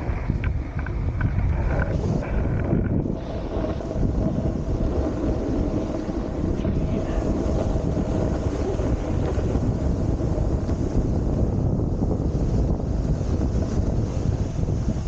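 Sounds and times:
snowboard sliding over snow: 0:00.0 - 0:15.0
wind buffeting microphone: 0:00.0 - 0:15.0.

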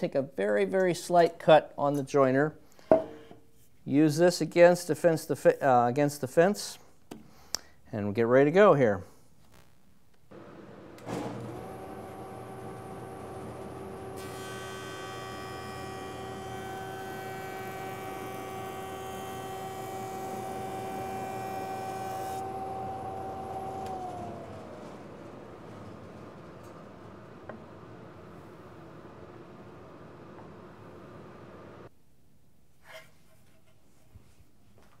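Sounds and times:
jointer motor humming: 0:10.3 - 0:31.9
motor winding down: 0:11.0 - 0:28.3.

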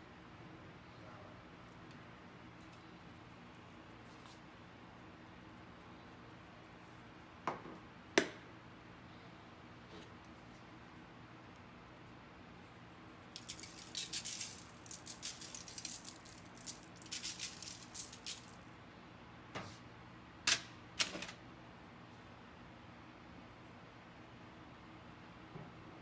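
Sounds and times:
salt rattling in shaker: 0:13.3 - 0:18.6.

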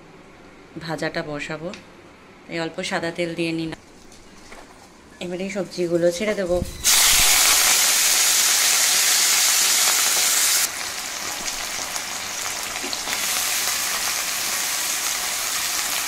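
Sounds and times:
vegetables sizzling in hot oil: 0:06.8 - 0:16.0.

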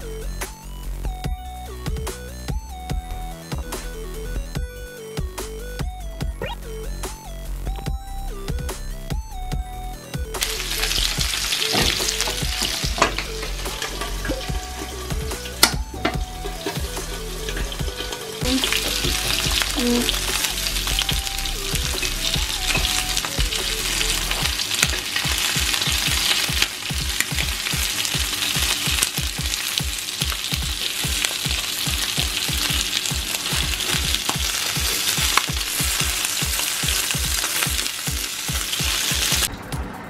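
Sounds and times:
chicken sizzling in oil: 0:10.4 - 0:39.5.

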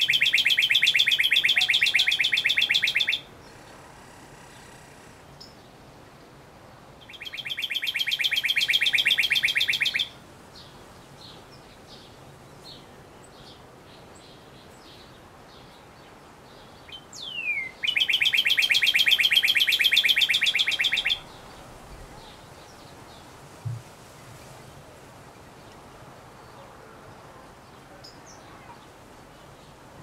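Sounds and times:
bird singing whistled notes: 0:00.0 - 0:03.3, 0:07.0 - 0:10.2, 0:16.9 - 0:21.3.

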